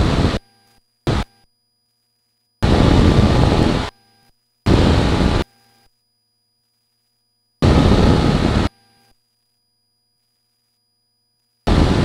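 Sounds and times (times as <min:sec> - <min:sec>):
faint electrical whine: 0:00.0 - 0:12.0
aircraft engine and wind noise: 0:02.6 - 0:03.9, 0:07.6 - 0:08.7, 0:11.7 - 0:12.0.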